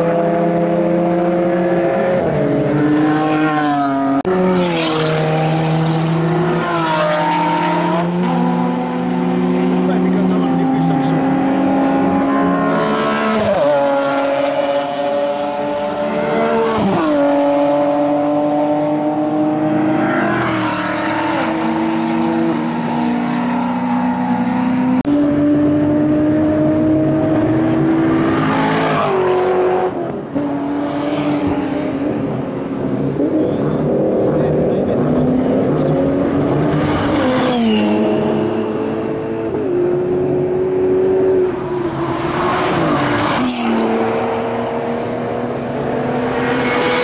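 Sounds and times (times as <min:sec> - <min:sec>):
race car engines revving: 0:00.0 - 0:47.0.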